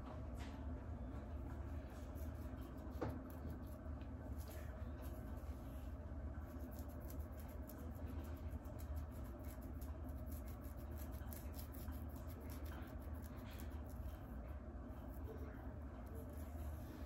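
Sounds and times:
low steady hum: 0.0 - 17.0
fingernails scratching scalp: 6.5 - 14.1.

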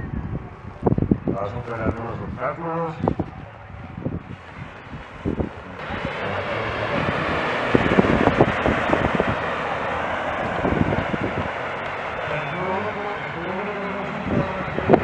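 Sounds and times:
off-road vehicle engine: 0.0 - 15.0
wind buffeting microphone: 0.0 - 15.0
water and mud splashing: 5.8 - 13.1.

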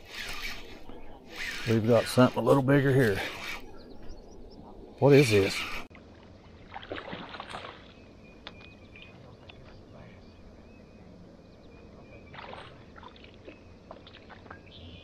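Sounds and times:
fish splashing at water surface: 6.6 - 7.9.

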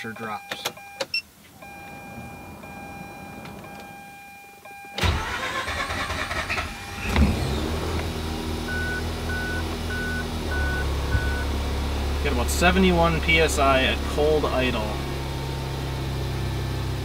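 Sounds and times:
rotary engine starting and idling: 5.0 - 12.4.

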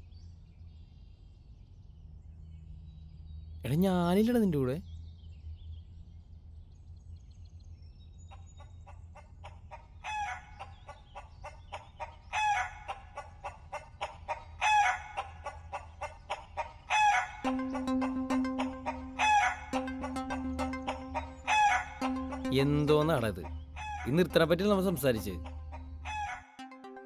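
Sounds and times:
rooster crowing: 10.0 - 10.7, 12.3 - 13.2, 14.4 - 15.4, 16.8 - 17.8, 18.6 - 19.8, 20.8 - 22.4, 23.7 - 24.2, 25.4 - 26.6
fast ticking music beat: 17.4 - 27.0.

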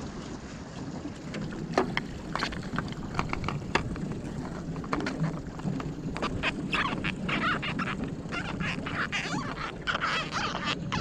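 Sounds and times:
low wind rumble: 0.0 - 11.0
gear knocking against boat hull: 1.7 - 6.5.

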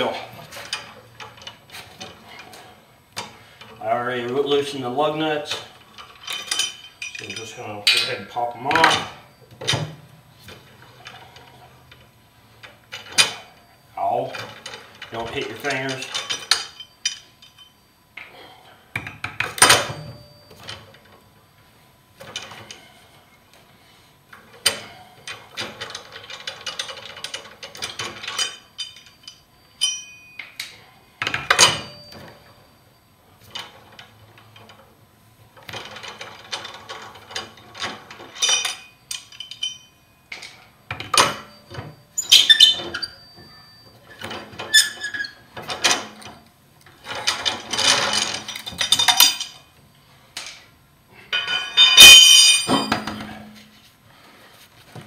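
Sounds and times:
steel wrench clanking: 26.8 - 32.4, 51.3 - 53.4.

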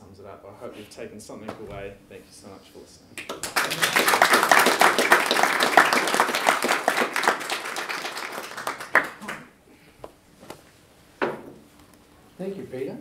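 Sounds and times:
audience applauding: 3.2 - 9.6.

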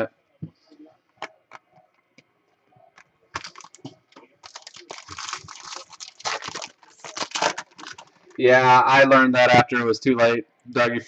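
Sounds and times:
foil wrapper crinkling: 3.3 - 8.4.

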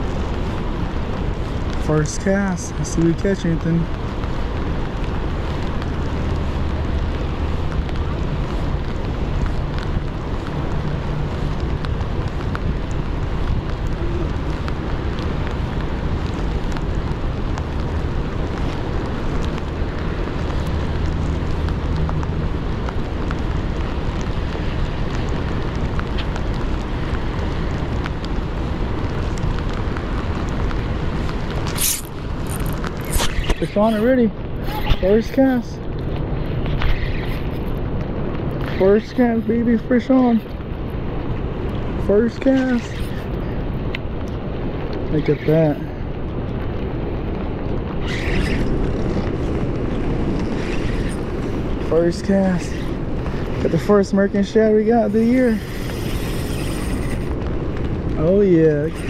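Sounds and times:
rain and wind on microphone: 0.0 - 59.0
sharp rustling clicks: 31.3 - 39.3.

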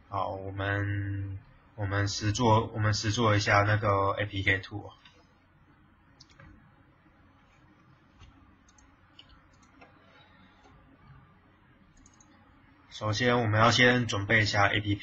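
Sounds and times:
faint computer mouse clicks: 8.2 - 10.0, 12.0 - 12.4.

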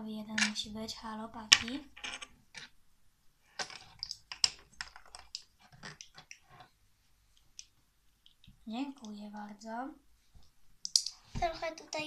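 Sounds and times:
plastic bricks clicking and clattering: 0.4 - 0.7, 1.5 - 2.7, 3.6 - 6.7.

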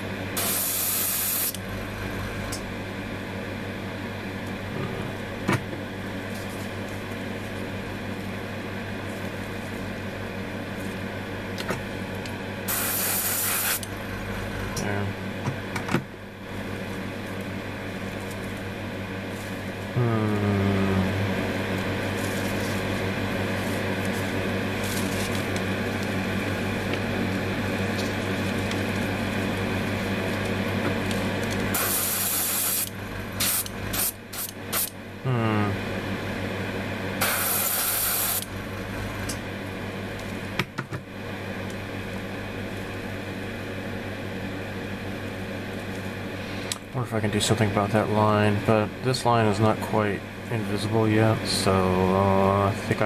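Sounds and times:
hissing air bursts: 12.7 - 13.8, 37.2 - 38.4.

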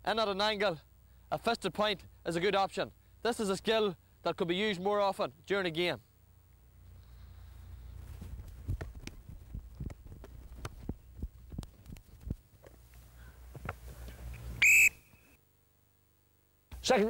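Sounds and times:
low wind rumble: 7.8 - 12.5
feet running on grass: 7.9 - 12.6
whistle blast: 14.6 - 15.4.

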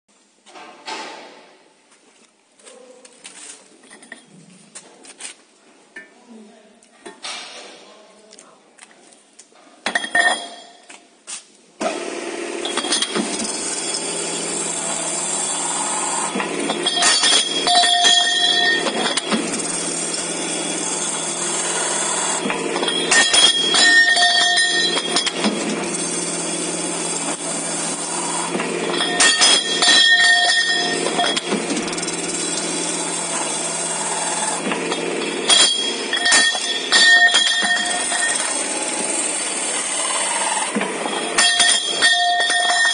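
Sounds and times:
machine motor hum: 11.8 - 42.9
cutter machining with ringing squeal: 12.6 - 42.9
metal pipes clanking: 12.7 - 14.9, 16.1 - 26.0, 27.1 - 39.1, 40.0 - 42.9.

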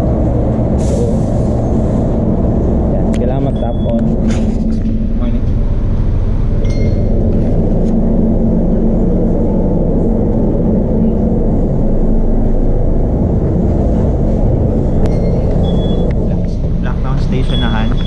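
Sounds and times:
bus engine rumbling: 0.0 - 18.0
short electronic beep: 15.1 - 16.1, 17.4 - 18.0.

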